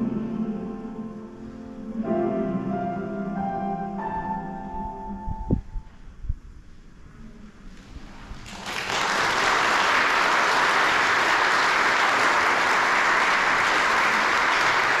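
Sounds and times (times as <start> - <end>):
audience applauding: 8.3 - 15.0.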